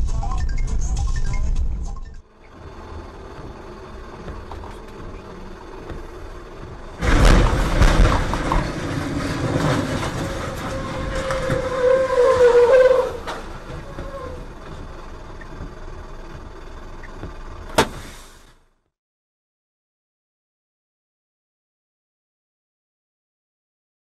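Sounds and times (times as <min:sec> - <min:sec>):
truck running noise: 0:00.0 - 0:18.9
heavy rumbling and scraping: 0:01.6 - 0:18.6
truck crash impact: 0:02.4 - 0:15.3, 0:17.6 - 0:18.6.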